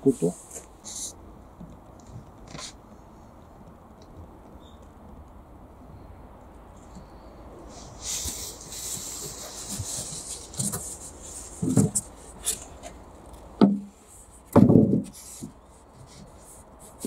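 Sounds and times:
foam boards knocking and rubbing: 8.2 - 13.0, 13.6 - 16.3
heavy thump: 14.5 - 15.2.

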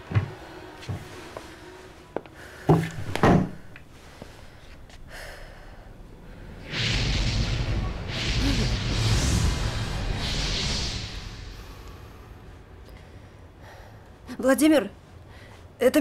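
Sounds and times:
low rumble: 4.0 - 14.2
steady rushing noise: 5.7 - 13.5.

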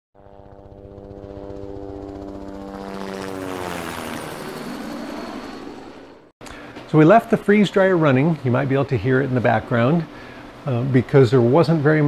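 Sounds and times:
propeller airplane flying past: 0.2 - 6.3.

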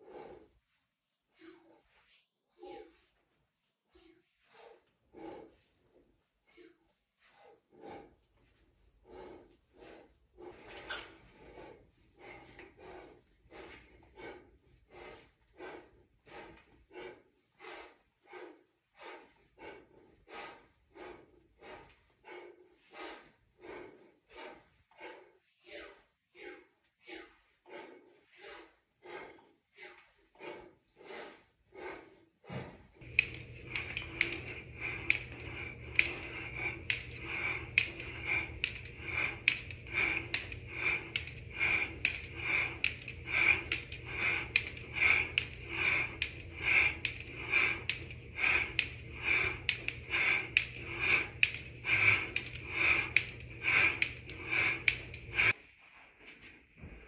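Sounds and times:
man breathing heavily: 0.0 - 55.7
low hum: 33.0 - 55.6.

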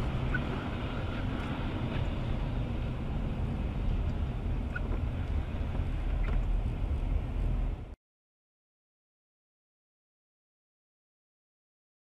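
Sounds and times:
vehicle rumble: 0.0 - 8.0.

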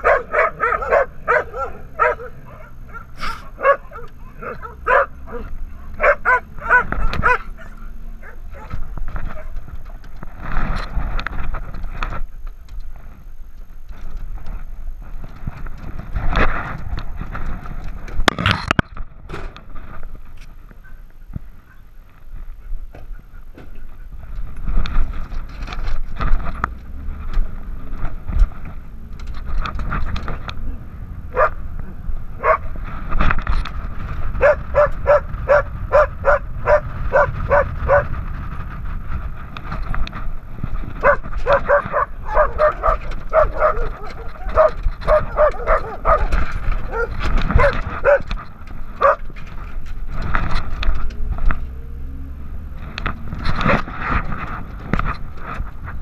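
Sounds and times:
dog barking: 0.0 - 8.8, 31.3 - 31.6, 32.4 - 32.7, 34.4 - 38.1, 41.0 - 48.3, 49.0 - 49.2
steady low rumble: 0.0 - 56.0.

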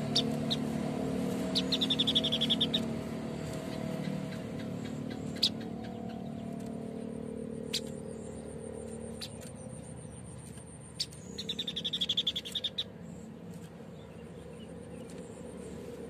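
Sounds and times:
low steady hum: 0.0 - 16.0
bird high fast trill: 1.3 - 6.2, 11.0 - 12.9.

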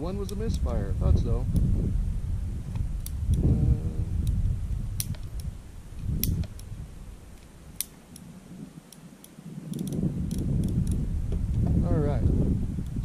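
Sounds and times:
revolver cylinder clicks: 5.0 - 5.5, 6.2 - 6.7, 7.4 - 8.3, 8.9 - 11.0.

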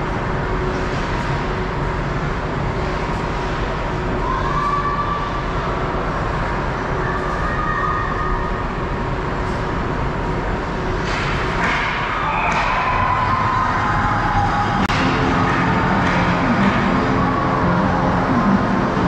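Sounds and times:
hockey sticks and puck clacking: 11.0 - 13.0, 14.8 - 17.2.

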